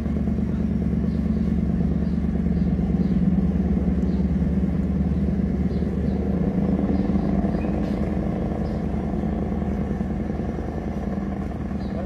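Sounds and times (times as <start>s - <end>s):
boat diesel engines droning: 0.0s - 12.0s.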